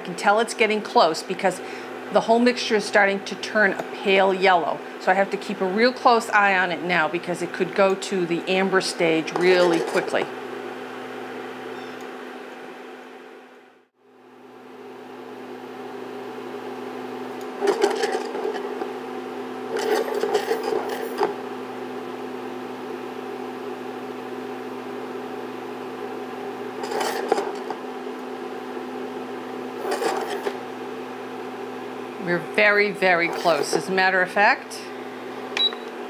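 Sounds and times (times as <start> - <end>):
induction cooktop humming: 0.0 - 36.0
pan scraping on glass: 26.8 - 27.8.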